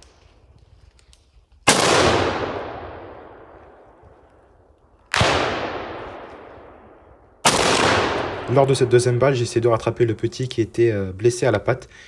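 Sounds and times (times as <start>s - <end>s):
rifle shot with echo: 1.6s - 4.0s, 5.1s - 9.1s.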